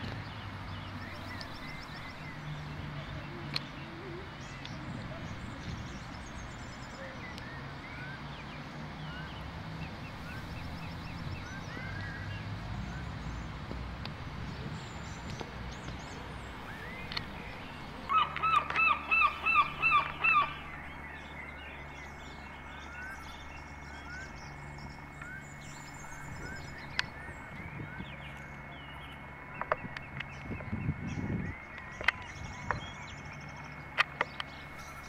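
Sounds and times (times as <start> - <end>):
loud yelping calls: 18.1 - 20.8.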